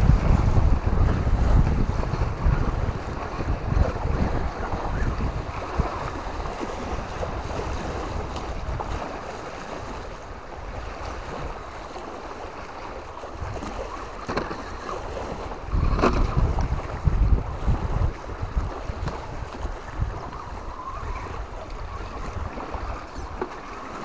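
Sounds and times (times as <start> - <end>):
steady rushing noise: 0.0 - 7.5
wind buffeting microphone: 0.0 - 24.0.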